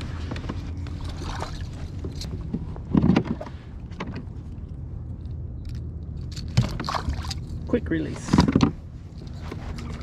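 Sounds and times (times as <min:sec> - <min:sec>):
steady low rumble: 0:00.0 - 0:10.0
clicks and knocks of fishing gear: 0:00.3 - 0:10.0.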